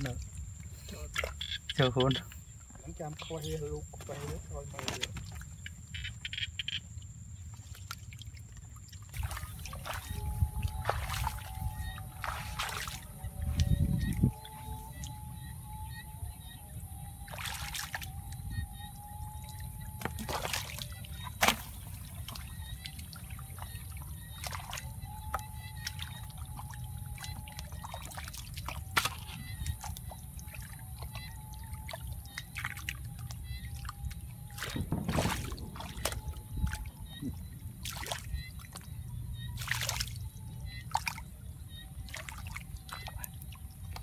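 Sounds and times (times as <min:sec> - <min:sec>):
sharp water splashes: 0:00.0 - 0:02.2, 0:03.1 - 0:15.3, 0:17.1 - 0:44.0
hands sloshing in muddy water: 0:07.4 - 0:15.2, 0:17.2 - 0:44.0.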